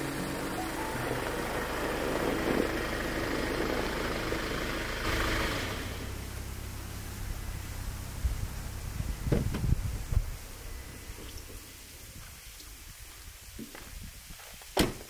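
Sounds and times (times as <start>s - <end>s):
van engine idling: 0.0s - 12.0s.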